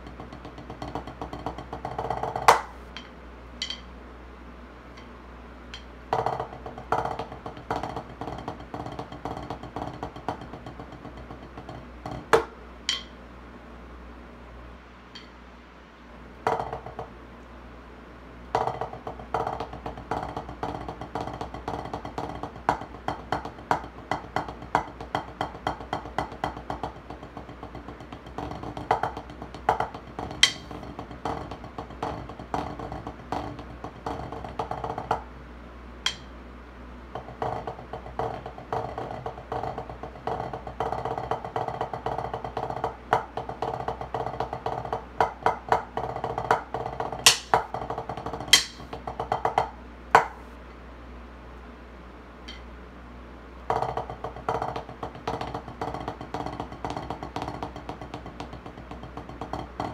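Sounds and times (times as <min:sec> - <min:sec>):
drumsticks tapping practice pad: 0:00.0 - 0:04.0, 0:04.8 - 0:13.3, 0:15.1 - 0:15.4, 0:16.4 - 0:17.5, 0:18.5 - 0:35.3, 0:36.0 - 0:36.4, 0:37.1 - 0:50.5, 0:52.4 - 0:52.7, 0:53.7 - 0:59.9.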